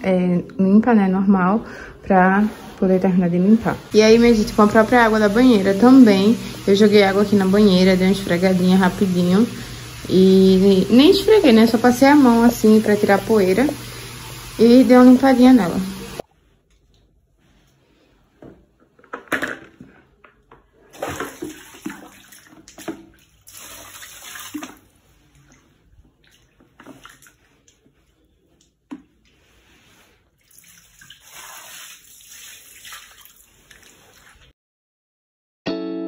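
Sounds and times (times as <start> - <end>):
water sloshing in plastic tub: 20.1 - 29.4, 30.2 - 34.5
water poured onto tiled floor: 20.9 - 25.6, 30.4 - 34.5.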